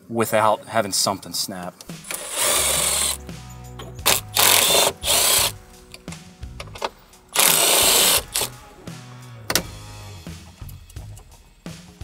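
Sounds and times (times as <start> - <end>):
power driver whirring: 2.0 - 3.2, 4.0 - 5.6, 6.6 - 8.5.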